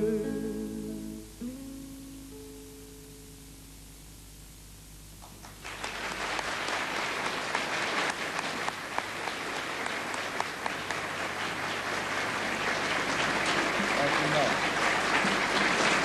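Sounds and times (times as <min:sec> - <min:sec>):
studio audience applauding: 0:05.2 - 0:16.0.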